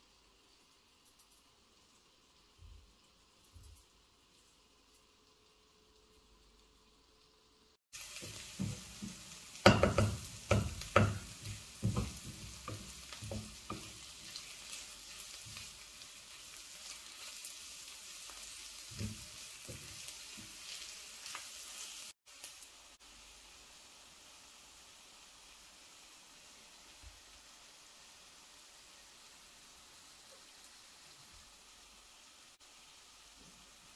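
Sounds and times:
onions sizzling in oil: 0.0 - 33.9
spatula scraping a pan: 8.2 - 15.8.

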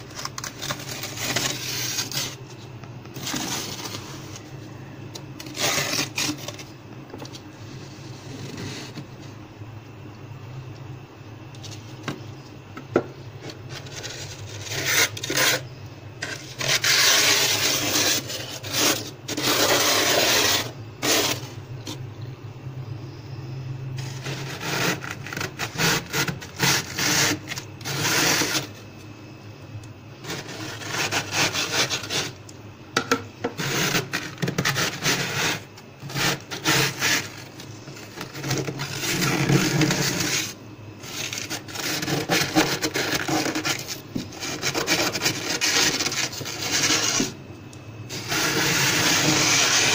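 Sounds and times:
plastic ruler scraping frost: 0.0 - 2.4, 3.2 - 4.2, 5.4 - 6.7, 13.7 - 15.6, 16.2 - 21.5, 24.0 - 28.8, 30.2 - 32.4, 33.5 - 47.4, 48.1 - 49.9.

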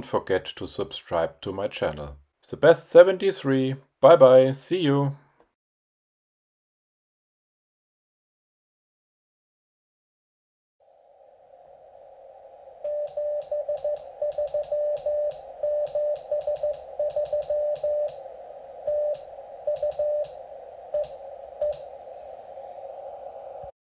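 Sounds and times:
morse code tone keying: 12.8 - 18.2, 18.9 - 20.3
radio hiss: 12.8 - 23.7.

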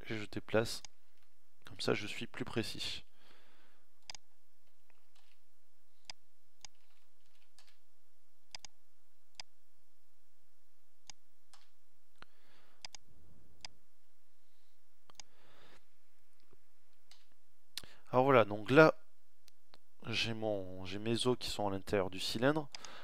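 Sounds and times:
computer mouse and keyboard clicks: 4.0 - 5.4, 6.0 - 7.8
soft rustling: 6.7 - 7.9.

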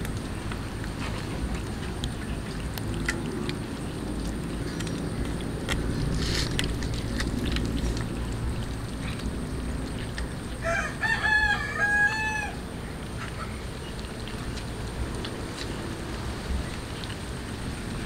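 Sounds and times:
steady low rumble: 0.0 - 18.0
rooster crowing: 10.6 - 12.6.

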